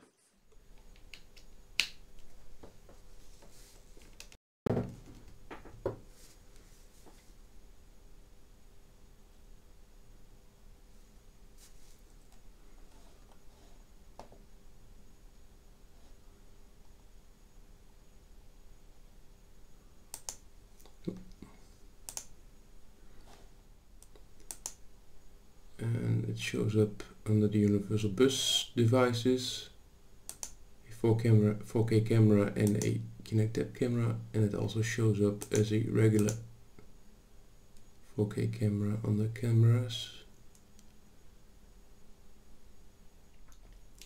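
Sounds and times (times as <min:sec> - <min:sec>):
faint steady hum: 0:00.0 - 0:44.0
dull thump: 0:04.7 - 0:06.0
heavy thunk: 0:04.7 - 0:06.0
computer mouse clicking: 0:20.1 - 0:21.3, 0:22.1 - 0:22.3, 0:24.0 - 0:24.8, 0:30.3 - 0:30.6, 0:32.6 - 0:32.9, 0:35.4 - 0:36.4.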